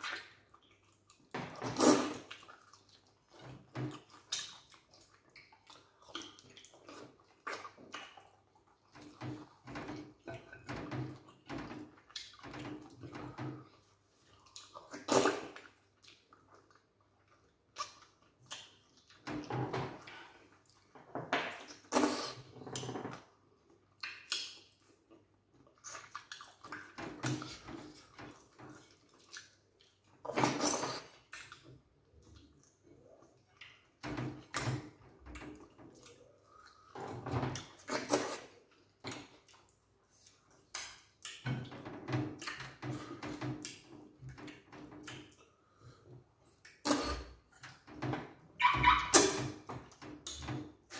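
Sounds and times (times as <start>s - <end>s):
people eating with wet smacking: 0.0s - 50.9s.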